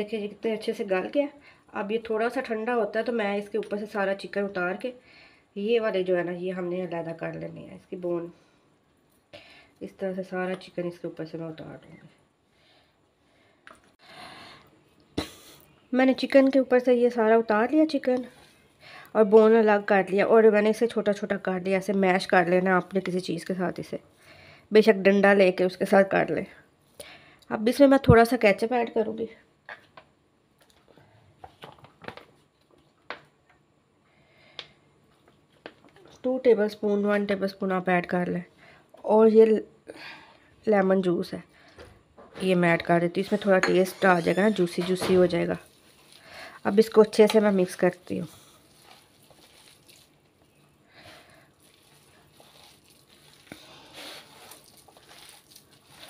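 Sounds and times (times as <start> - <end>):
hand squishing shredded chicken: 45.6 - 46.8, 48.6 - 50.7, 51.5 - 56.0.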